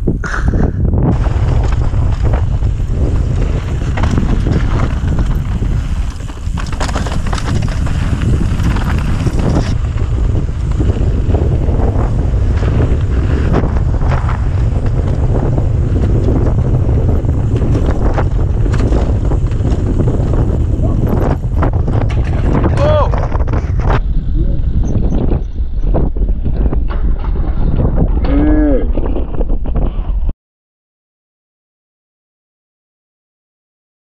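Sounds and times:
low rumble: 0:00.0 - 0:30.3
wind buffeting microphone: 0:00.0 - 0:30.3
bike clicks and rattles: 0:01.1 - 0:28.3
tyres crunching over gravel: 0:01.2 - 0:21.4.

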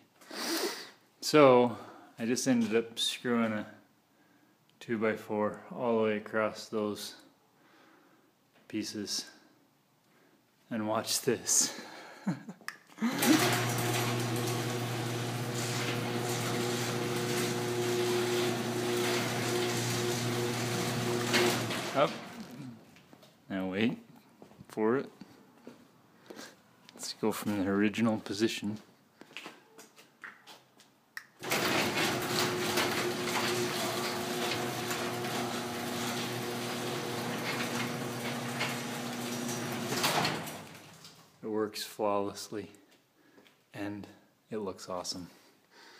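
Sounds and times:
garage door motor humming: 0:13.1 - 0:22.5, 0:31.4 - 0:41.1.

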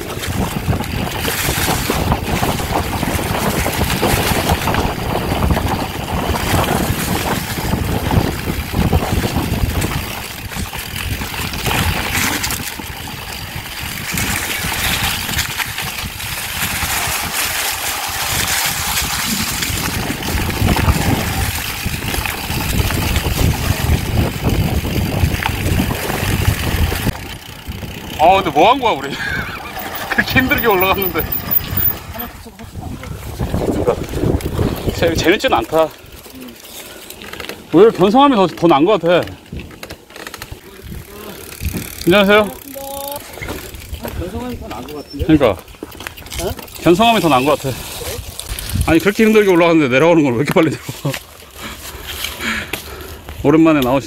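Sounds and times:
wind rushing over microphone: 0:00.0 - 0:36.1, 0:40.6 - 0:42.4, 0:46.8 - 0:49.3
bike knocking and rattling: 0:00.0 - 0:54.0
bike tyres rumbling over leaves: 0:00.0 - 0:54.0.

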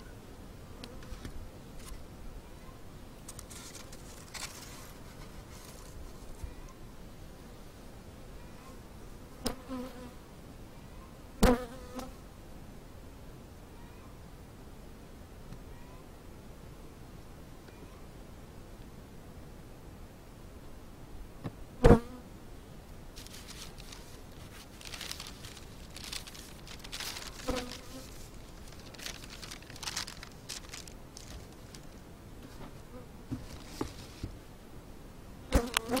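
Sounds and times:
newspaper rustling: 0:03.3 - 0:06.4, 0:23.2 - 0:32.6, 0:33.4 - 0:34.3
honeybees buzzing: 0:23.2 - 0:32.0.

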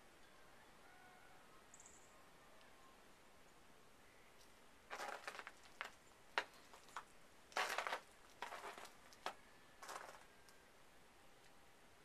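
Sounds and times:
footsteps crunching in snow: 0:04.9 - 0:07.0, 0:07.6 - 0:10.2.

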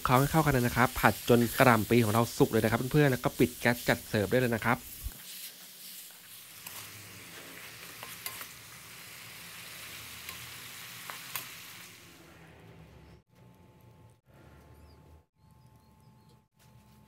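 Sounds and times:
cabbage sizzling in oil: 0:00.0 - 0:12.2.

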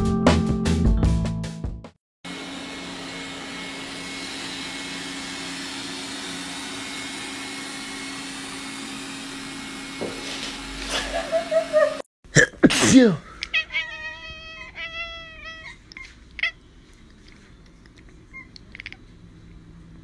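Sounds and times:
robot vacuum cleaner humming: 0:02.3 - 0:12.0.

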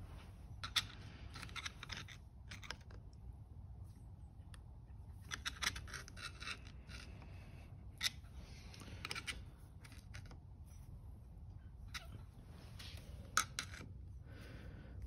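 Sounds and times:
screwdriver scraping and clicking on metal: 0:05.2 - 0:07.2, 0:08.0 - 0:10.4.

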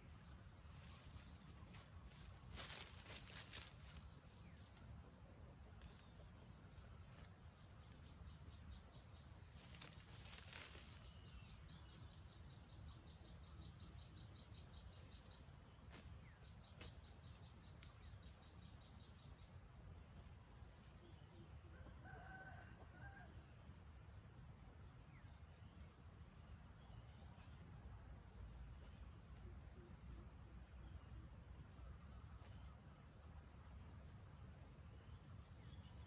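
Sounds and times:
insect chirping: 0:00.0 - 0:36.0
dry leaves rustling: 0:00.7 - 0:04.1, 0:09.6 - 0:11.1.

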